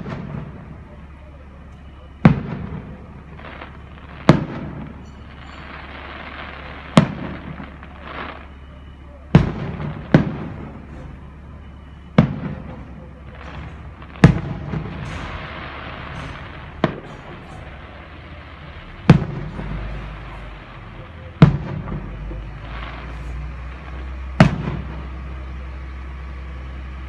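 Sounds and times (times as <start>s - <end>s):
firework shells bursting: 12.2s - 23.4s.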